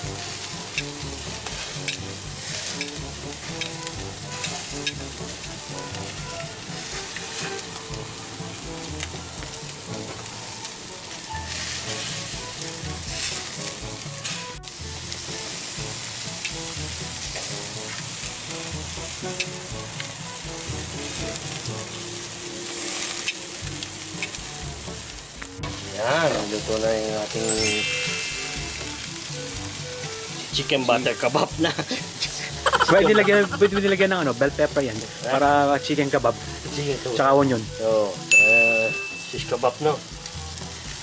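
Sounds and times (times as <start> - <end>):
chicken skewers sizzling on grill: 0.0 - 41.0.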